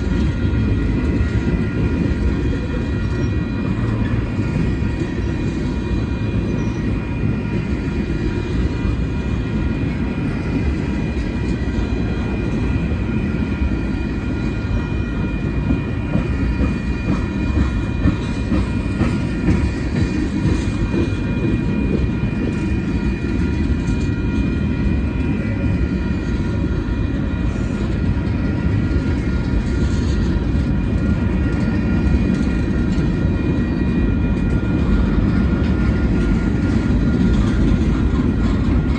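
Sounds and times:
steel wheels rumbling on rail: 0.0 - 38.9
faint rail clacks: 13.9 - 38.9.

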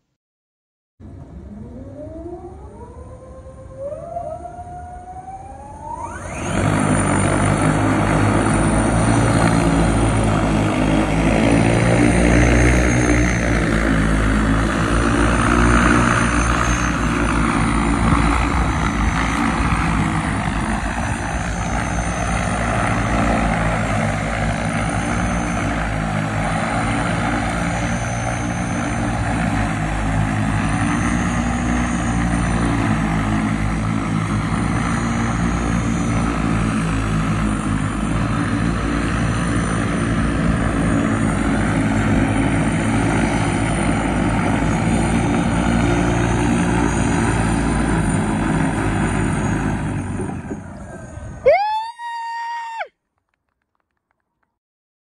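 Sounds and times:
electric motors and propellers humming: 1.0 - 51.5.

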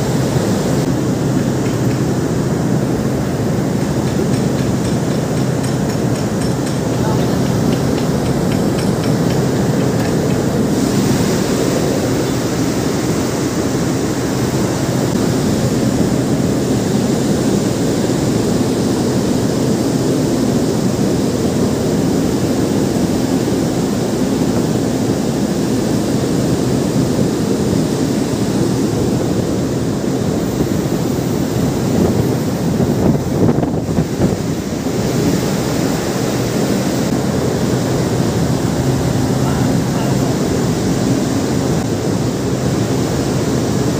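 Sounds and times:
wind and sea rushing: 0.0 - 43.9
wind buffeting microphone: 26.4 - 43.9.

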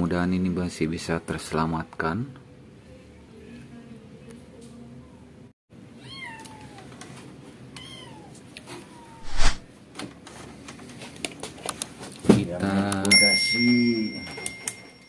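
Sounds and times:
cat meowing: 6.0 - 7.0, 7.8 - 9.6
clicking and handling noise: 10.0 - 12.2.

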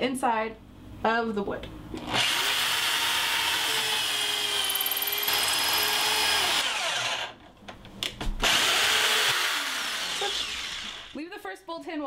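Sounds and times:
drill clicks: 2.0 - 7.4, 8.4 - 11.2
power drill whining: 2.0 - 7.4, 8.4 - 11.2.

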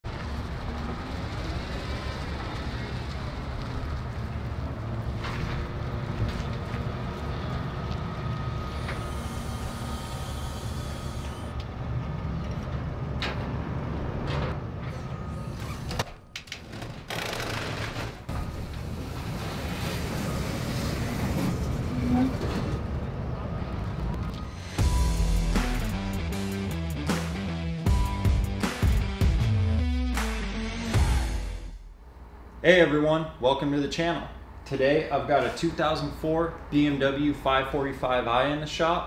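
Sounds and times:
diesel engine running: 0.1 - 13.1.

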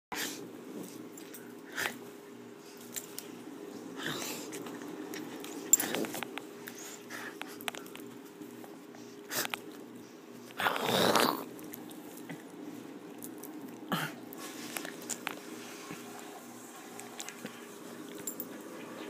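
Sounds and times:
faint steady hum: 0.1 - 19.0
rustling scrape: 14.4 - 18.2.

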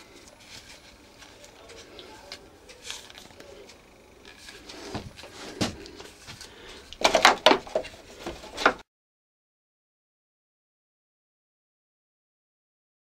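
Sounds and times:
plastic parts knocking and clicking: 6.9 - 8.8.

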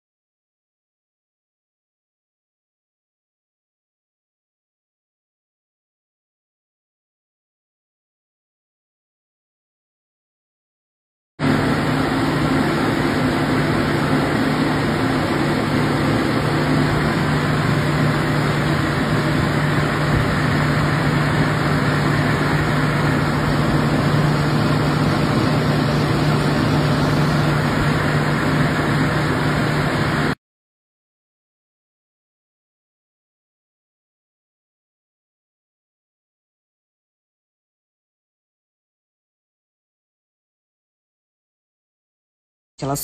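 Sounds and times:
mechanical hum with low drone: 11.4 - 30.4.

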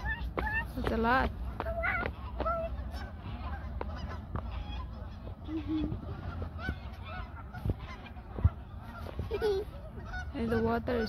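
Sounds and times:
flock of geese honking: 0.0 - 11.0.

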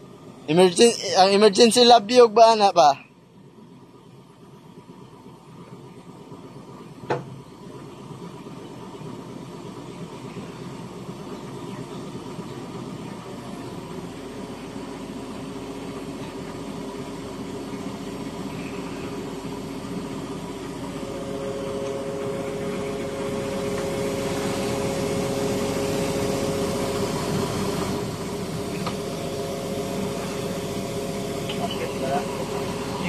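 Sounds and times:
machinery running: 9.0 - 33.0
humming tone: 20.8 - 33.0.

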